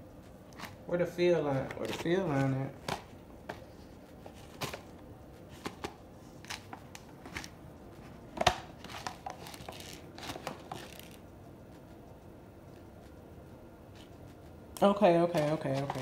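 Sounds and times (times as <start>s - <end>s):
paper packaging crinkling: 8.3s - 11.2s, 15.3s - 16.0s.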